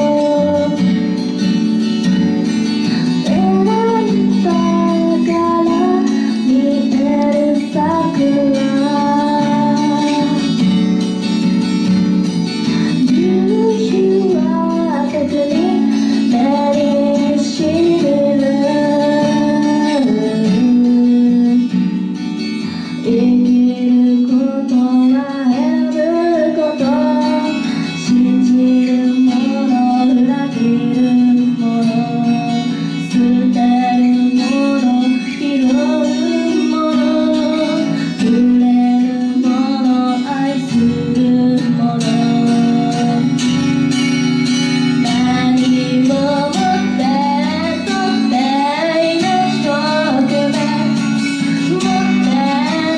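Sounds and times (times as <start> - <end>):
acoustic guitar: 0.0 - 52.9
woman singing: 0.0 - 52.9.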